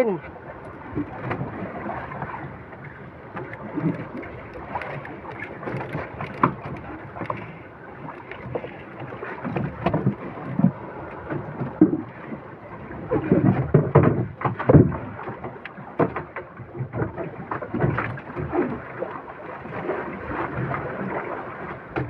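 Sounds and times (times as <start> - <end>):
water around boat: 0.0 - 22.0
wind: 0.0 - 22.0
handline spool knocks and clicks: 3.4 - 7.5.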